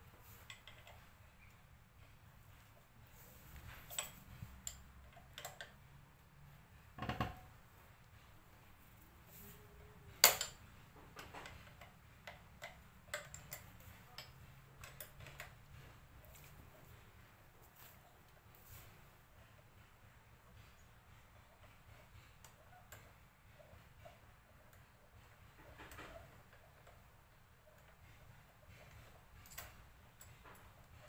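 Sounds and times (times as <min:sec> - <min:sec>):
metallic clicks and taps of tools: 0:00.3 - 0:01.6, 0:03.5 - 0:05.8, 0:10.1 - 0:17.0, 0:27.8 - 0:31.0.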